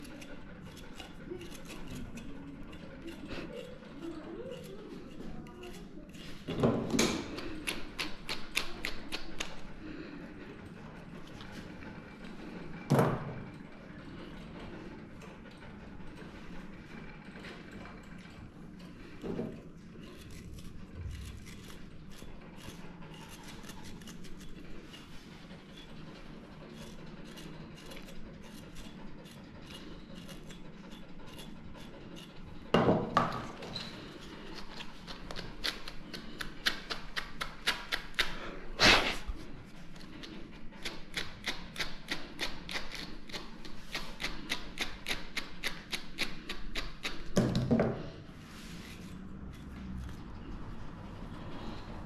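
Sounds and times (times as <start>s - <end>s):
brush scratching through dog hair: 48.4s - 49.2s.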